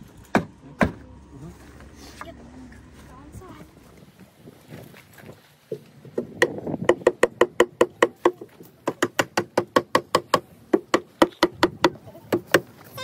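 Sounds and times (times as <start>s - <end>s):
mallet knocking on wooden staves: 5.7s - 12.7s.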